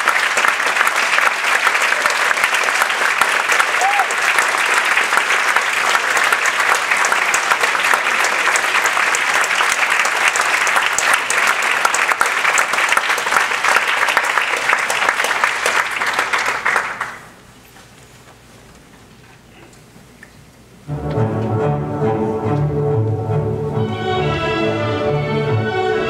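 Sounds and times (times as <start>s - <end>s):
audience applauding: 0.0s - 17.4s.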